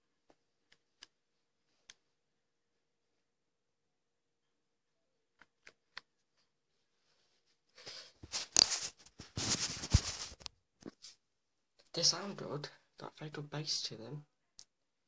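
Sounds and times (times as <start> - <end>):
scratchy rubbing on recorder: 7.8 - 10.5.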